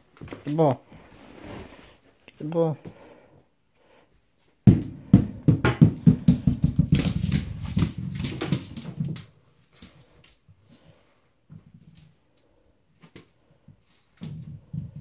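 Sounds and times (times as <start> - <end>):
ball knocking and bouncing: 4.6 - 9.3
paws pattering on tiles: 5.9 - 15.0.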